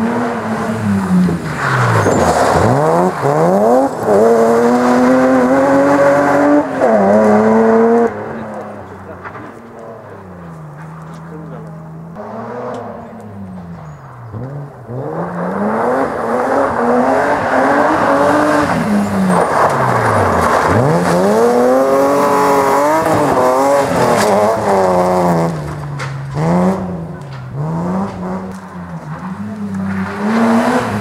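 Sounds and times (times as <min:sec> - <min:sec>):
rally car engine revving: 0:00.0 - 0:31.0
tyres scattering gravel: 0:01.0 - 0:05.4, 0:18.5 - 0:31.0.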